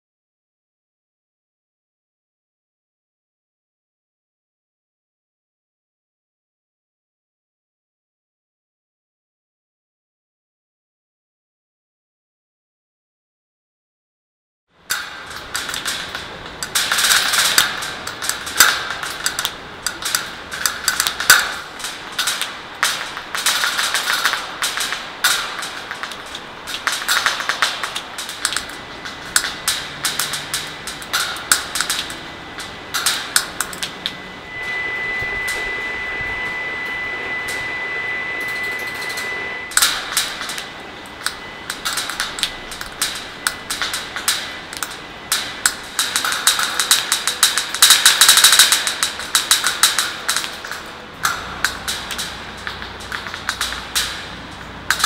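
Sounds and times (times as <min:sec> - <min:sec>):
steady high tone: 0:32.1 - 0:45.3.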